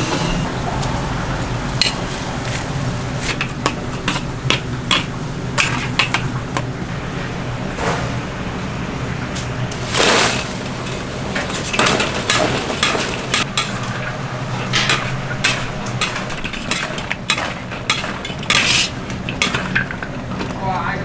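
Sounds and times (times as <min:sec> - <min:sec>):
metal utensils clanking on pans: 0:01.8 - 0:02.1, 0:03.2 - 0:06.7, 0:09.8 - 0:21.0.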